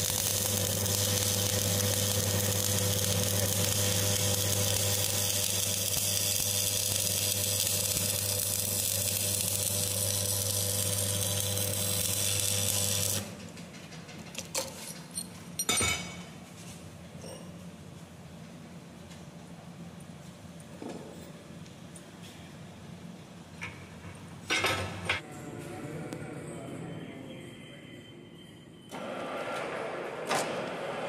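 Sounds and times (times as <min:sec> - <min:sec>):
welding arc crackling and hissing: 0:00.0 - 0:13.3.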